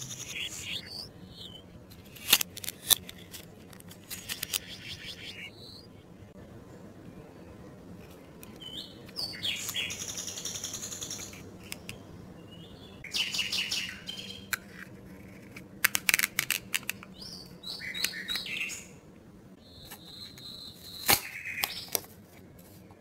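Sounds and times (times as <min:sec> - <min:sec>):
cardboard pieces squeaking and clicking: 0:00.2 - 0:05.8, 0:14.6 - 0:18.5, 0:19.8 - 0:23.0.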